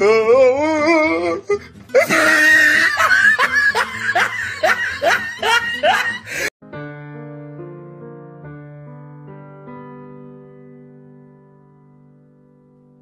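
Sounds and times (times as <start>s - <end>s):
person laughing loudly: 1.9s - 6.5s
piano music: 2.0s - 13.0s.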